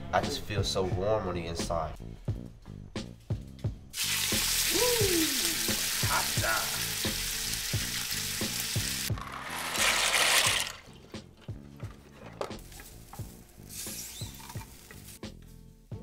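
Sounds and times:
music with low beat: 0.2s - 9.3s, 10.9s - 16.0s
food sizzling in a pan: 4.0s - 9.1s, 12.6s - 15.2s.

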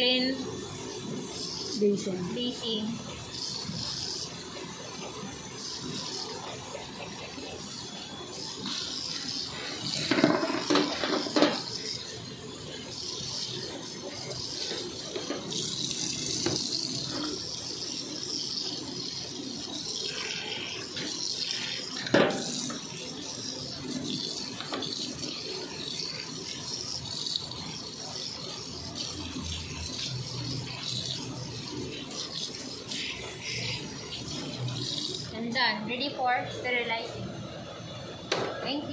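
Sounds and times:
tap water running and splashing: 0.0s - 35.5s.

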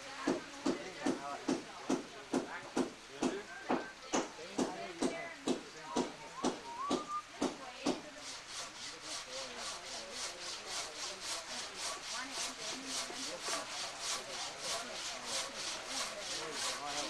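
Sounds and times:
handsaw cutting wood: 7.4s - 17.0s.

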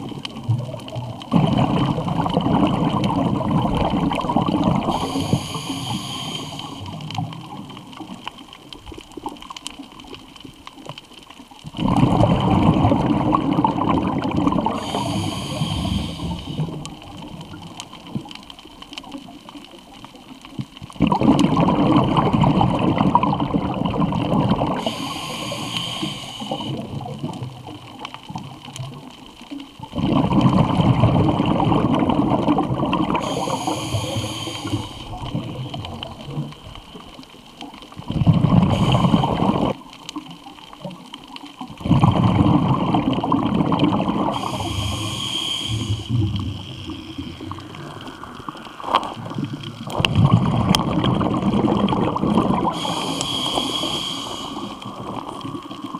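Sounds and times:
exhaled bubbles rushing underwater: 0.0s - 55.9s
regulator hiss: 4.9s - 7.0s, 14.6s - 17.2s, 24.8s - 26.9s, 33.2s - 35.4s, 38.7s - 39.6s, 44.3s - 49.6s, 52.7s - 55.4s.

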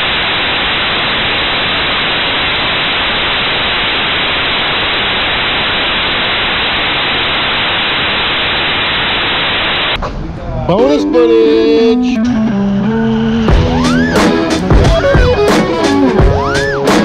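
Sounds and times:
loud static hiss: 0.0s - 11.8s, 13.2s - 17.0s.

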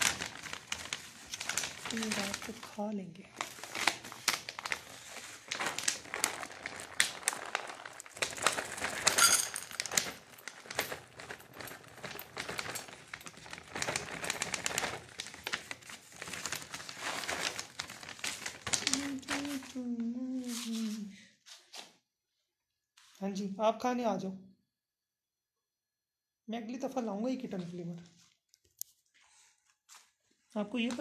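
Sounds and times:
foil bag crinkling: 0.0s - 20.9s
dry kibble rattling into metal bowls: 6.0s - 15.1s.

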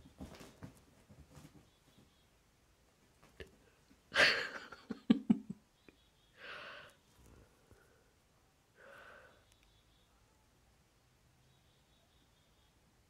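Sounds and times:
bedding rustling: 0.0s - 2.1s
breathy exhale: 8.8s - 9.5s.

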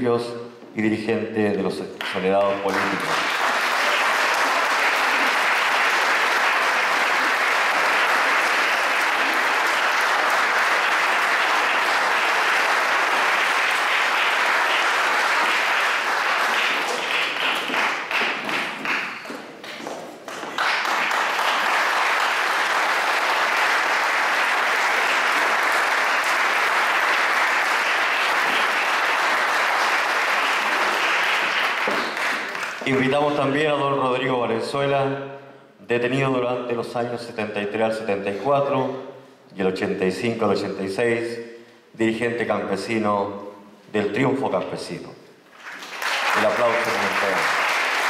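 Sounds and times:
audience applauding: 2.6s - 33.3s, 45.5s - 48.0s.

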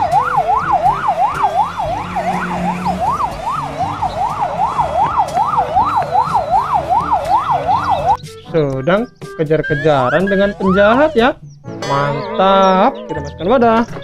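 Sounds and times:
police siren wailing: 0.0s - 8.2s.

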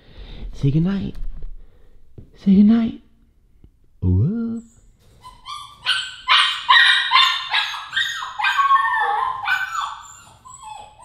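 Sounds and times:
puppy yelping and whining: 4.6s - 11.0s.

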